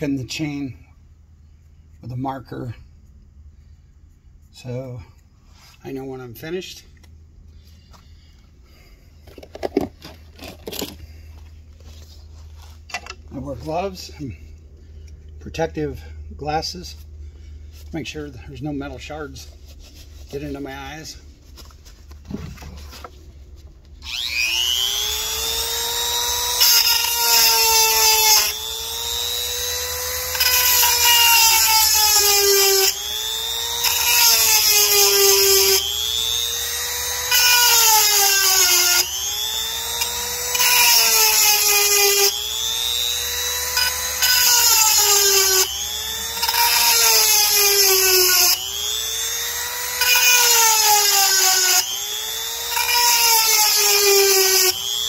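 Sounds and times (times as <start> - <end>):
sharpener motor whine: 24.0 - 55.0.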